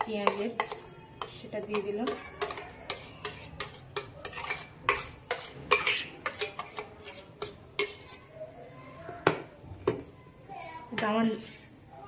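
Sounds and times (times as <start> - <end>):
spoon scraping a bowl: 0.0 - 8.3, 11.2 - 11.7.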